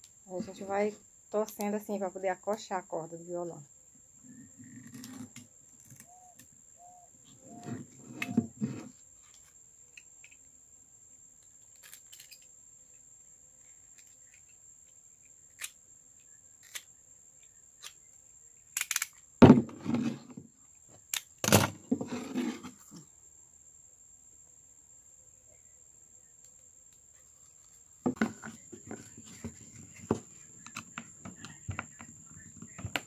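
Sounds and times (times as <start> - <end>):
palm stalk knocks and scrapes: 28.1 - 32.0.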